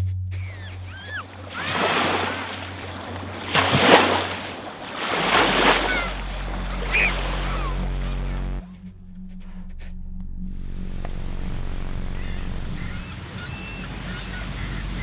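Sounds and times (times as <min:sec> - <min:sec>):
surf-like rushing swells: 0:01.2 - 0:07.7
low musical drone: 0:02.2 - 0:15.0.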